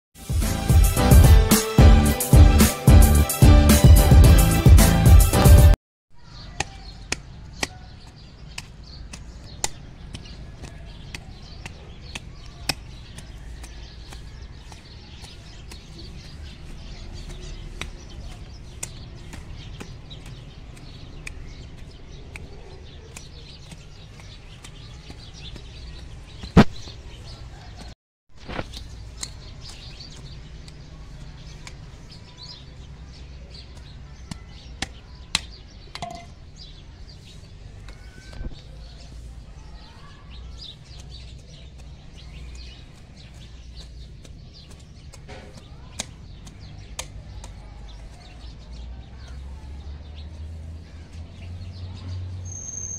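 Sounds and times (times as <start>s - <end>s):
garden fork clicking in soil: 7.6s - 26.9s, 28.4s - 32.2s, 40.4s - 48.3s
faint bird chirps: 52.4s - 52.9s.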